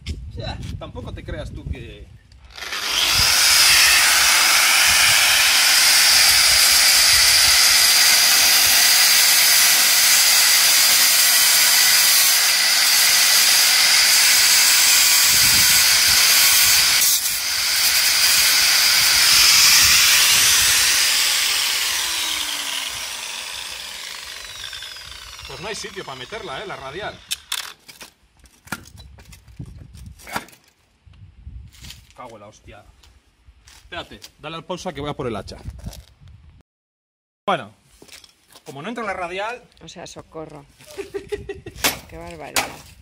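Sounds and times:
angle grinder cutting steel: 2.4 - 27.8.

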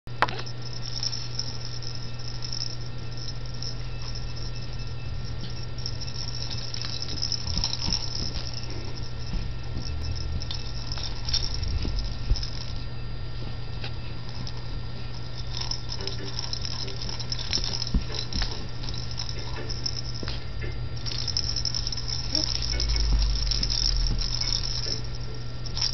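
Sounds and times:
low hum: 0.1 - 25.9
toy rattle pieces clicking: 5.8 - 9.0, 10.4 - 12.7, 15.3 - 20.3, 21.0 - 25.9.

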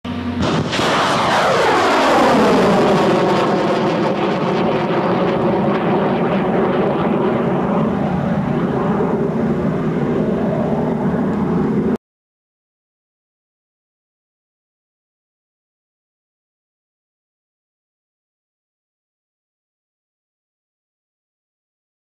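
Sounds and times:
rocket motor roaring: 0.1 - 12.0.

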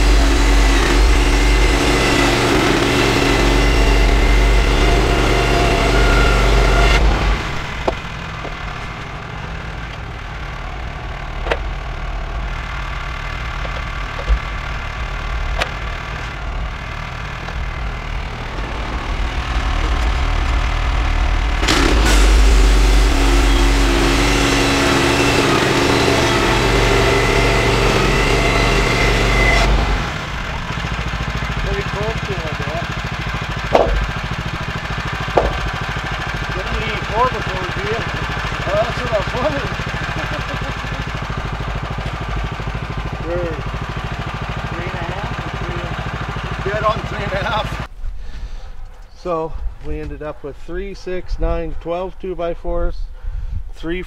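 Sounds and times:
saw blade cutting wood: 0.0 - 9.0, 21.6 - 30.2, 31.6 - 42.2
sawmill gas engine running: 0.0 - 48.6
boards knocking: 33.6 - 34.4, 35.2 - 36.0.

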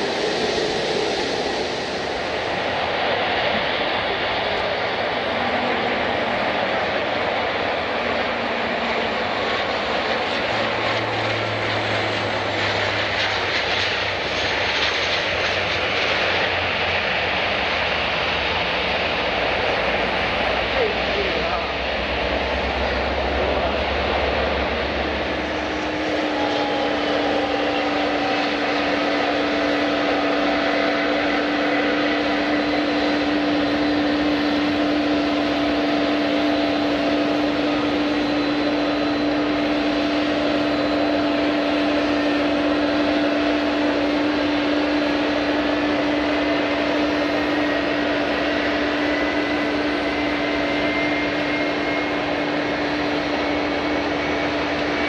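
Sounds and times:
jet engines humming and whining: 0.0 - 55.0
rising high tone: 22.6 - 55.0.

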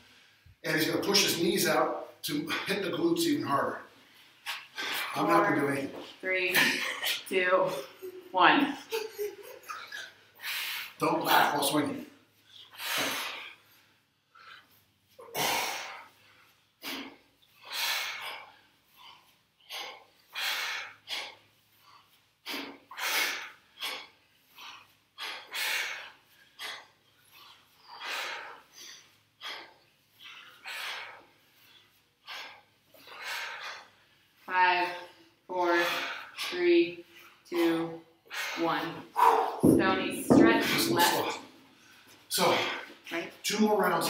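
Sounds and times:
people breathing out sharply: 12.6 - 13.8.

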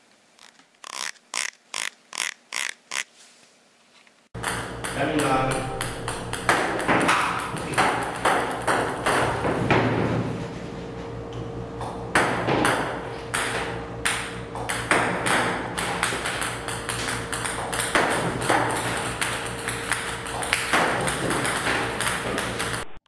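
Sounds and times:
ping-pong balls bouncing on table: 4.4 - 9.6, 12.1 - 22.8
steady hum: 4.4 - 23.0.

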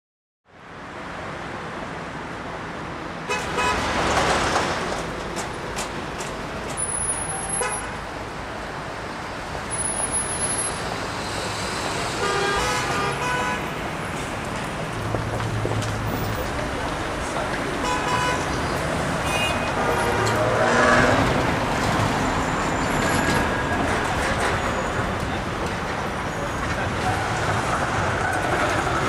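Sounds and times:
city street traffic: 0.4 - 29.0
car horns: 3.3 - 4.0, 12.2 - 13.7, 17.8 - 18.6, 19.2 - 21.2.

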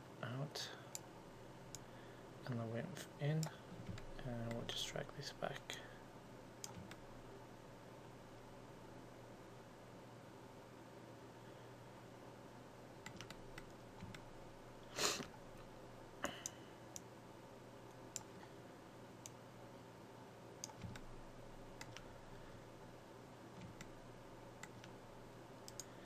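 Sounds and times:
faint steady hum: 0.0 - 26.0
mouse and keyboard clicks: 6.6 - 7.0, 13.0 - 14.3, 20.6 - 21.1, 21.8 - 22.1, 23.6 - 24.0, 24.6 - 25.0.

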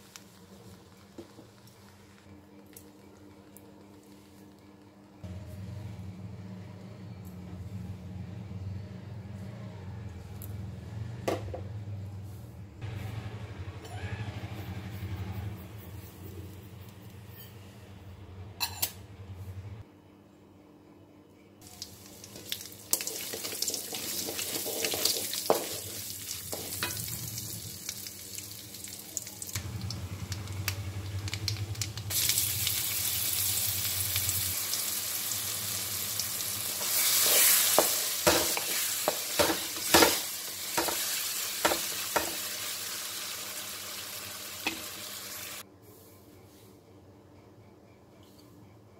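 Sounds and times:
spices sizzling in oil: 21.6 - 45.6
spatula stirring and scraping: 23.0 - 27.0.

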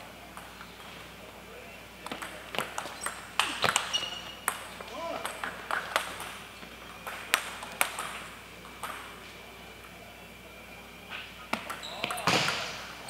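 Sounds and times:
table tennis ball clicking: 2.0 - 6.4, 7.0 - 9.0.

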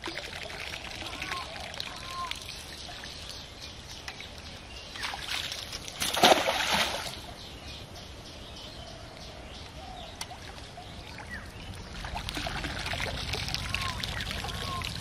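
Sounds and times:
net splashing into water: 5.0 - 7.2.

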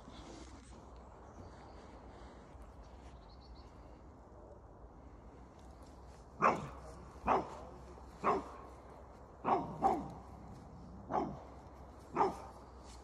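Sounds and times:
dog barking: 6.4 - 8.6, 9.4 - 10.2, 11.1 - 11.5, 12.1 - 12.6.

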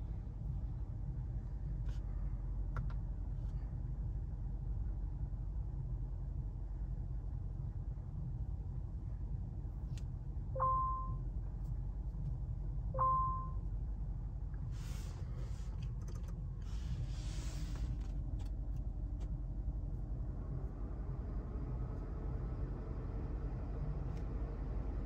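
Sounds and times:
low rumble: 0.0 - 25.0
two-pitch electronic chime: 10.6 - 11.2, 13.0 - 13.6.

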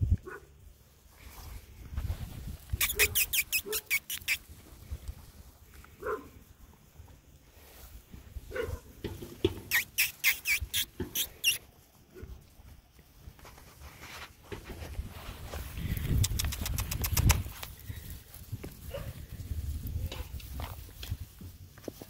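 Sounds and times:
puppies yipping: 2.7 - 4.6, 9.6 - 11.7.

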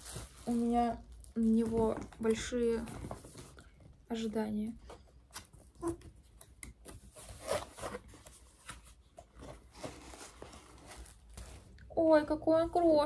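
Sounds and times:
cardboard and paper rustling: 0.0 - 3.9, 4.8 - 11.8.

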